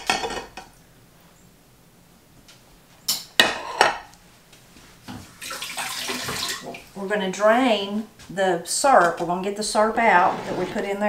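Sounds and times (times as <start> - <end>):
plates clattering on counter: 0.0 - 0.7, 3.1 - 4.1.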